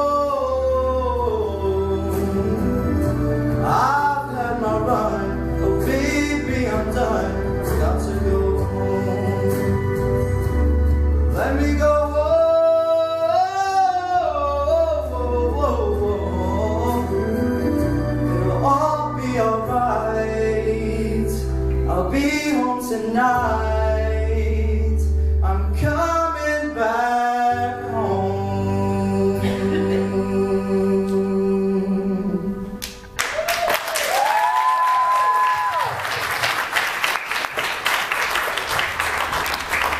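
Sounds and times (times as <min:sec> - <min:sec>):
man singing a ballad: 0:00.0 - 0:32.8
instrumental accompaniment: 0:00.0 - 0:33.4
audience applauding: 0:32.8 - 0:39.9
audience cheering: 0:33.2 - 0:39.9.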